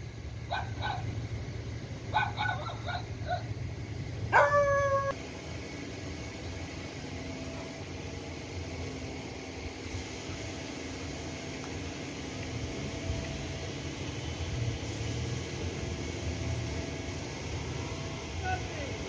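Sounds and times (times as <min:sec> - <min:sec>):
dog yapping: 0:00.5 - 0:01.0, 0:02.1 - 0:03.5, 0:04.3 - 0:05.1
dog yelping: 0:00.5 - 0:01.1, 0:02.1 - 0:03.5, 0:04.3 - 0:05.1.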